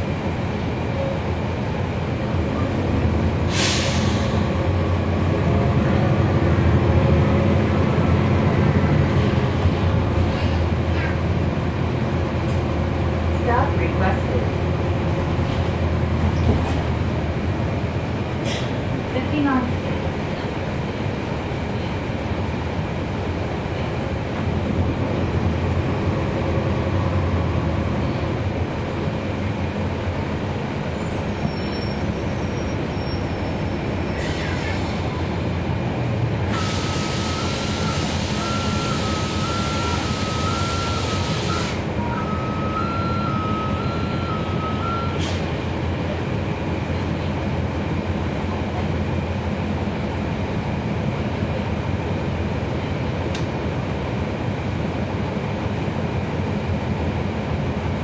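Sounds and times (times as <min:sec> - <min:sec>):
bus diesel engine drone: 0:00.0 - 0:58.0
air hiss: 0:36.5 - 0:41.8.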